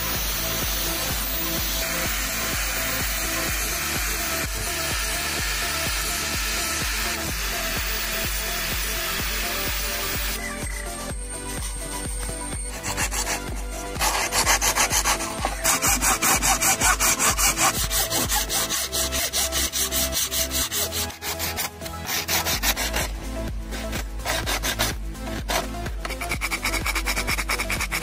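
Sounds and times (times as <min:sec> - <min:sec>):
hacksaw cutting coconut shell: 0:00.0 - 0:10.4, 0:12.2 - 0:28.0
shell rubbed on sandpaper: 0:11.4 - 0:28.0.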